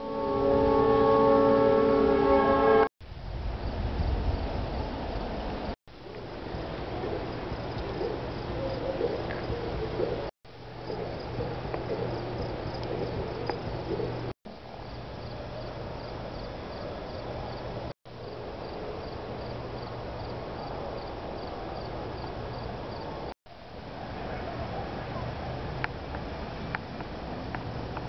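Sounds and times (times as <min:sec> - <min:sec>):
steady low hum: 0:00.0 - 0:20.5
insects chirping: 0:03.7 - 0:23.3.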